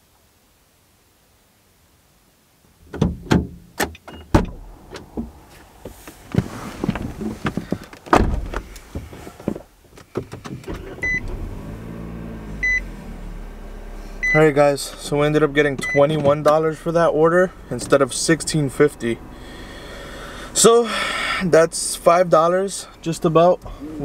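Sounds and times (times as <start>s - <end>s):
car door shutting: 2.8s - 16.7s
car door clicks and knocks: 2.9s - 5.4s, 6.3s - 11.2s
low steady hum: 10.7s - 24.0s
car warning chime beeps: 11.0s - 11.4s, 12.6s - 12.9s, 14.2s - 16.9s.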